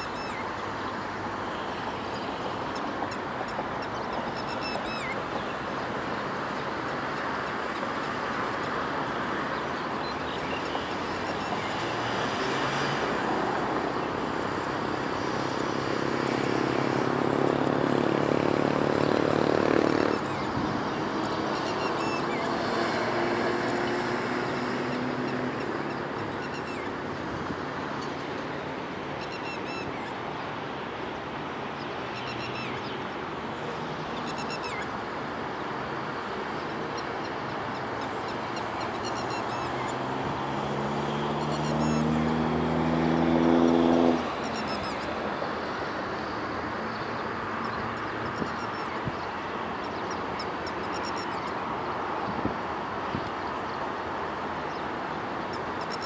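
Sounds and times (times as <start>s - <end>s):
lapwing alarm calls: 0.0s - 0.5s, 3.8s - 5.6s, 21.5s - 22.6s, 24.9s - 26.9s, 32.1s - 32.9s, 37.8s - 40.1s, 41.4s - 42.2s, 49.9s - 51.5s
engine hum: 37.7s - 46.8s.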